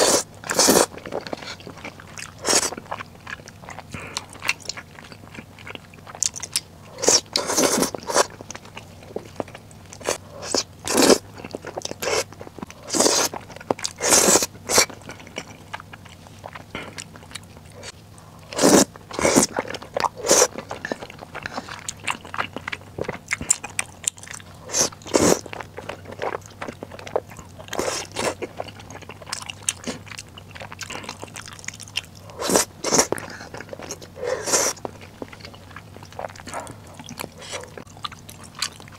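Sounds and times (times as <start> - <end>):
wet chewing: 0.0 - 38.9
loud slurping of noodles: 18.6 - 19.5, 34.2 - 34.8.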